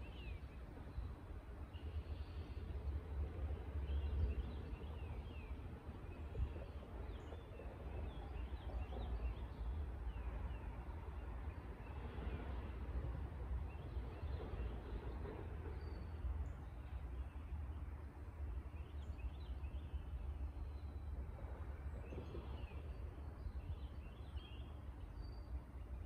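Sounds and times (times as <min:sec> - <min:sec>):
wind rustling trees: 0:00.0 - 0:26.0.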